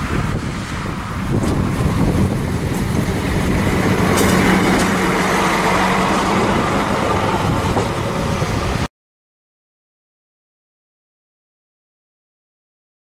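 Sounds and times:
diesel engine humming: 0.0s - 8.9s
train wheels on track: 0.0s - 8.9s.

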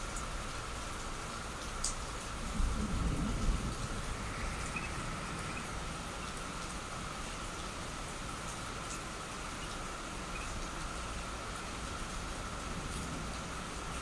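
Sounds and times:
heavy rain: 0.0s - 14.0s
low rumble: 2.5s - 6.8s.

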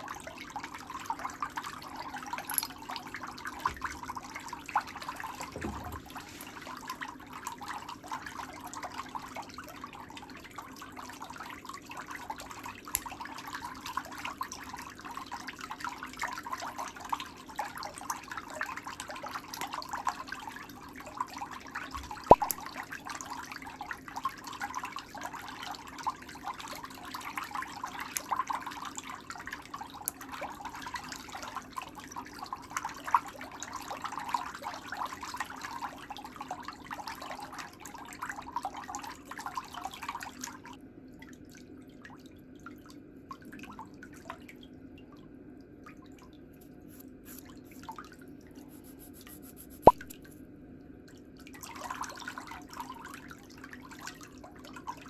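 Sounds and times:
faint steady hum: 0.0s - 55.0s
sharp toenail snap: 22.3s - 22.6s.

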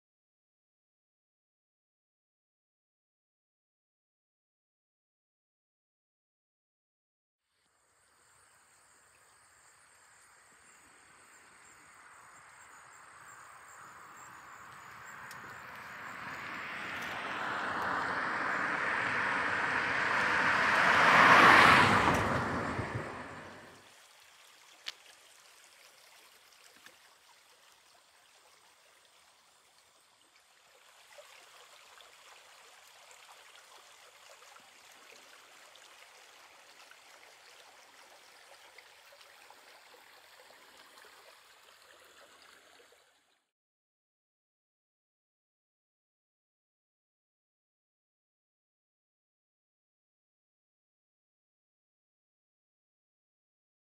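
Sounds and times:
creek trickling faintly: 7.5s - 43.5s
road vehicle passing: 13.6s - 23.8s.

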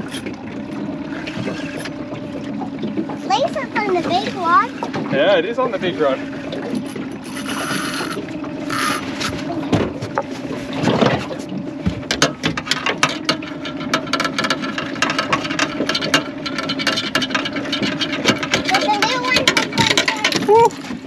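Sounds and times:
steady low hum: 0.0s - 18.6s
fishing reel ticking: 6.8s - 9.4s
fishing line hissing off reel: 7.2s - 9.3s.

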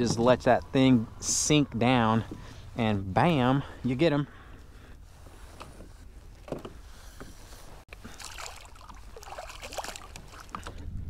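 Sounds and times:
fish splashing in water: 7.9s - 10.8s.

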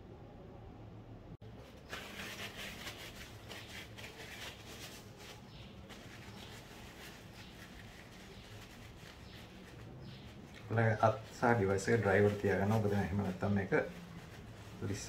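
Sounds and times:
paper towel rustling: 1.4s - 15.0s.

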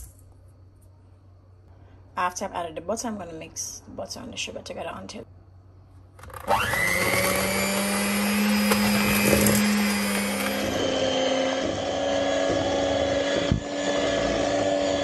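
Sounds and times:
electric hand mixer whirring: 6.2s - 15.0s.

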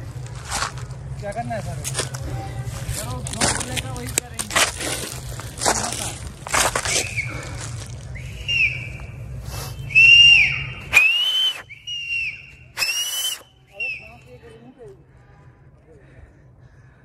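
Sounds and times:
rustling and crunching: 0.0s - 8.2s
whistled notes rising and falling: 6.9s - 7.3s, 8.1s - 14.4s.

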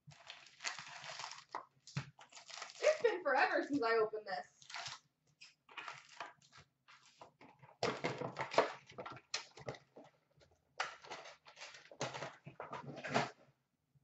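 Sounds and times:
foil wrappers crinkling: 0.1s - 3.2s, 5.7s - 7.3s.

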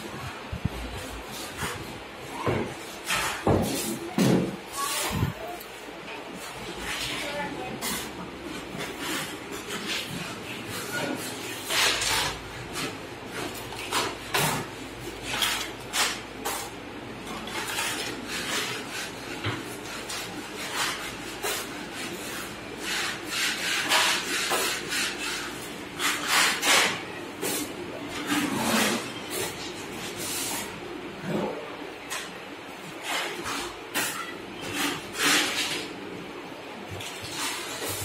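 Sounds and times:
putty blade scraping wall: 17.5s - 29.5s, 33.0s - 35.8s.

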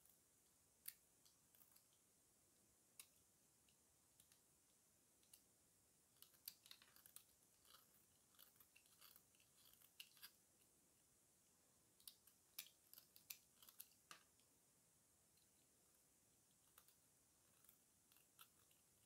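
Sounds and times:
utility knife cutting soap: 6.1s - 10.4s, 12.0s - 14.3s.

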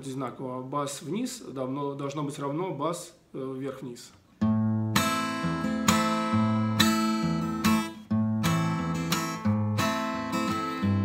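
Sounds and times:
acoustic guitar bass and strum: 4.4s - 11.0s.

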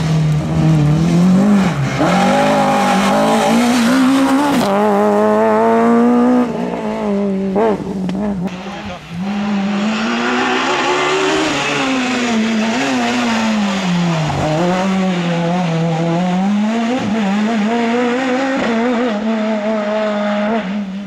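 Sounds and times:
rally car engine passing: 0.0s - 21.0s.

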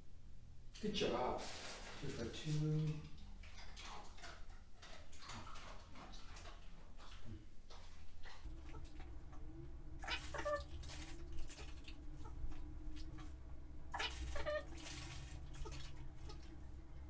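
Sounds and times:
steady low hum: 6.9s - 17.0s.

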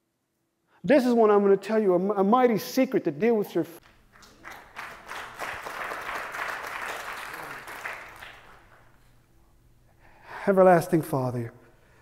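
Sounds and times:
crowd applauding: 3.8s - 9.0s.

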